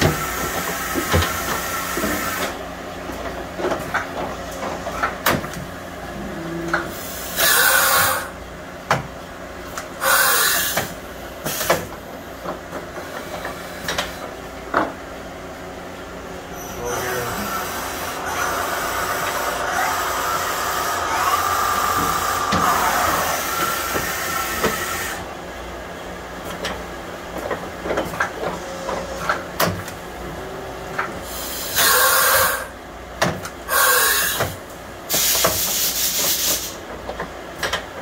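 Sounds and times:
machine whine and air hiss: 0.0 - 36.9
blasts of hissing air: 10.0 - 11.8, 16.9 - 25.2, 33.7 - 34.5.

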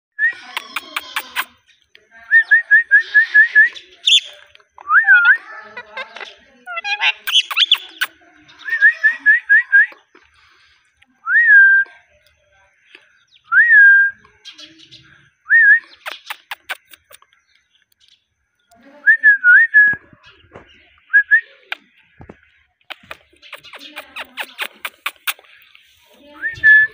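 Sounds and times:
scratchy parrot chatter: 0.4 - 1.7, 5.2 - 8.2, 16.0 - 17.3, 22.9 - 26.2
parrot chirping: 3.2 - 4.4, 5.0 - 8.2, 15.9 - 17.2, 22.9 - 25.6.

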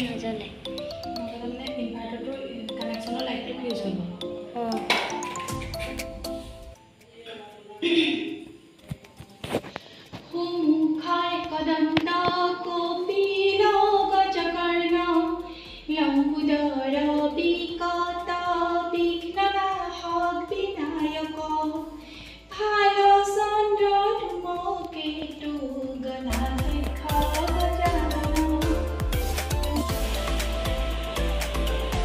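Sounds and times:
woman singing: 10.3 - 21.8, 22.5 - 30.2.

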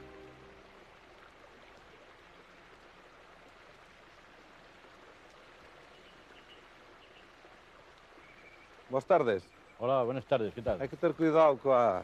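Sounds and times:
faint rush of river water: 0.0 - 12.0.

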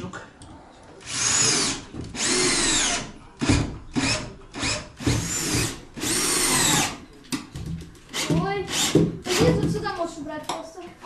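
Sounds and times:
cordless drill whining: 1.0 - 3.1, 4.0 - 6.9.

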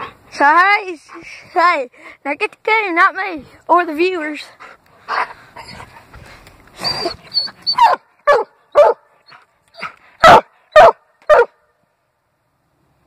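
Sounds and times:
dog barking: 7.8 - 9.0, 10.2 - 11.6.

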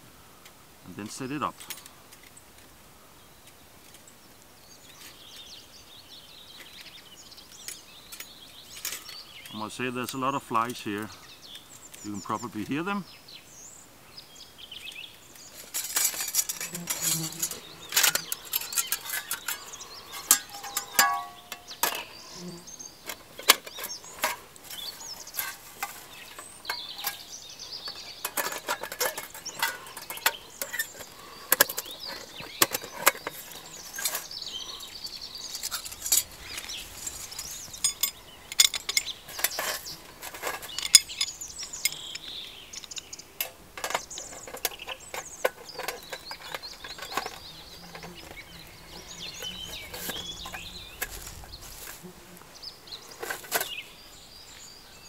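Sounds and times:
metal clinking and rattling: 15.4 - 22.2, 23.0 - 34.4, 35.4 - 48.4, 53.2 - 53.8.

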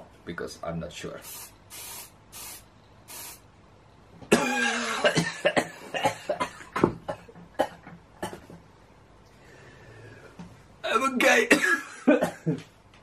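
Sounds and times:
spray canister hissing puffs: 1.2 - 3.5
man coughing: 4.3 - 8.5, 11.4 - 12.6.

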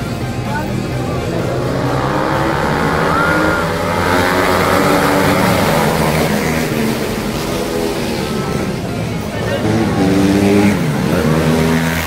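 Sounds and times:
racing motorcycles passing by: 0.0 - 12.0.

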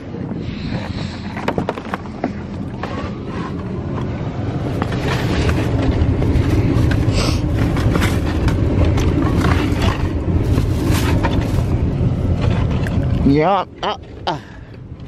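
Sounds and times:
wind buffeting microphone: 0.0 - 15.0
bags and bottles rustling: 4.7 - 12.8.

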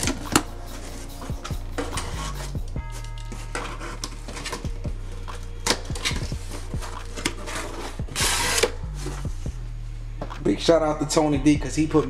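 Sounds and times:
cardboard box rustling and scraping: 6.0 - 9.4.

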